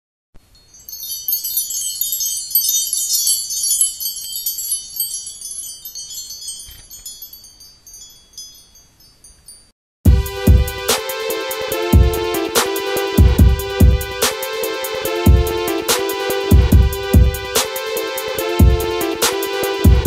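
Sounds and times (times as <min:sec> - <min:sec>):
high tinkling chimes: 0:00.4 - 0:09.8
music with heavy beat: 0:10.1 - 0:20.0.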